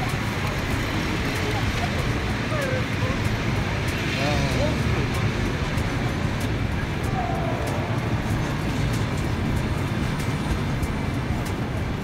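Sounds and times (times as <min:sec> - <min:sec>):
faint irregular clicks: 0:00.0 - 0:12.0
vehicle rumble: 0:00.0 - 0:12.0.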